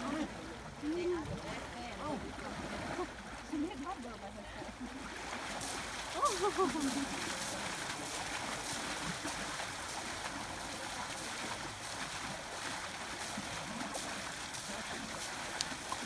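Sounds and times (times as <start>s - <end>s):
river water rushing: 0.0s - 16.0s
water splashing: 0.0s - 16.0s.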